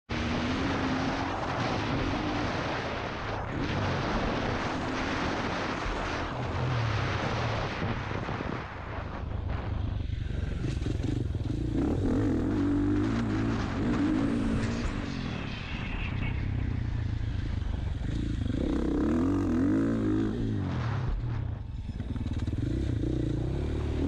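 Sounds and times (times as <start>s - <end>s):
dirt bike engine revving: 10.6s - 24.0s.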